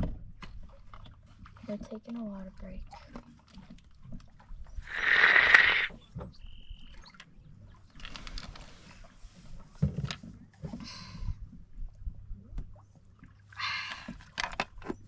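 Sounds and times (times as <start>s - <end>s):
drinking from a water bottle: 4.8s - 5.9s
short high peep: 4.9s - 5.9s.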